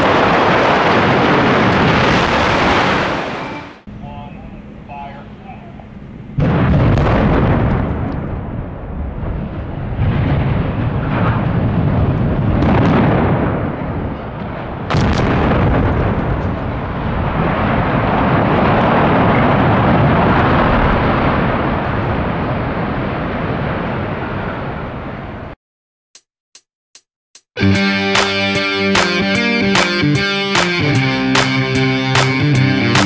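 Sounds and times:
explosive booms and cracks: 0:00.0 - 0:03.5, 0:06.4 - 0:25.0
dense rumble of collapse: 0:00.0 - 0:25.6.

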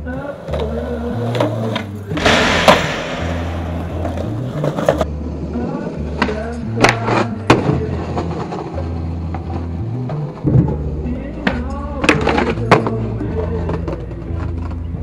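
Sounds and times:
skateboard wheels on concrete: 0:00.0 - 0:15.0
rock music: 0:02.2 - 0:04.9.

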